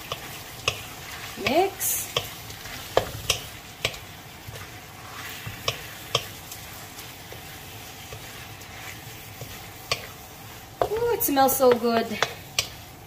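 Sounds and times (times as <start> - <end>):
wooden spatula knocking pan: 0.0 - 4.6, 5.4 - 6.4, 10.8 - 12.8
food sizzling in a wok: 0.0 - 13.0.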